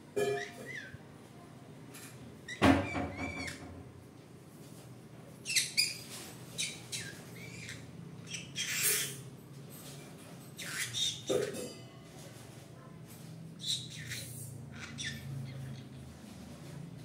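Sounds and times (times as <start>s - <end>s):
parrot chirps and squawks: 0.2s - 1.0s, 2.5s - 3.6s, 5.4s - 9.3s, 10.6s - 11.8s, 13.6s - 16.0s.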